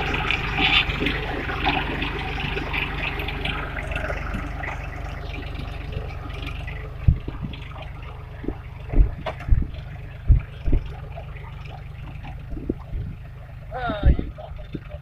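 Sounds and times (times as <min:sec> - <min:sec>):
tractor engine running: 0:00.0 - 0:15.0
short thump: 0:08.4 - 0:10.9.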